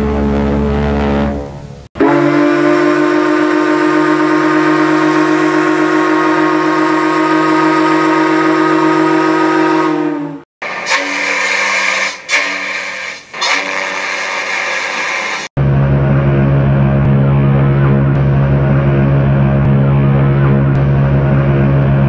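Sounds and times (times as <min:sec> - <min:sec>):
deep steam whistle blast: 0:00.0 - 0:15.5
higher ship's whistle: 0:02.0 - 0:14.4.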